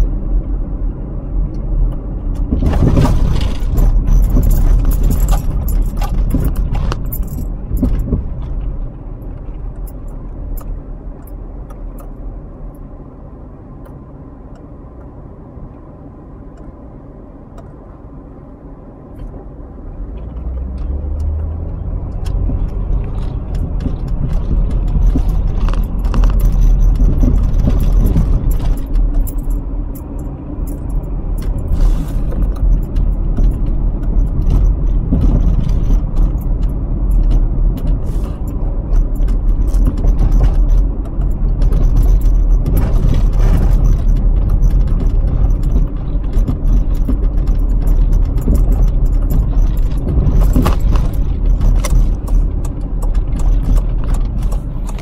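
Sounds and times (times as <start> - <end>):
car engine and road noise: 0.0 - 55.0
metallic jingling rattle: 2.9 - 8.1, 22.8 - 37.3.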